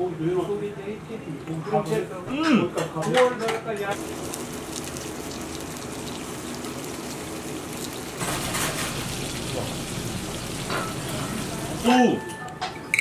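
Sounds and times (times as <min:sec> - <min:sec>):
fish sizzling in oil: 0:04.0 - 0:11.9.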